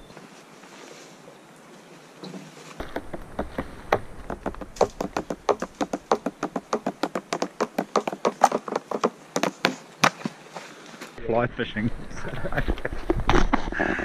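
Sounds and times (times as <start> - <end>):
clothing bumping against camera: 2.8 - 10.3.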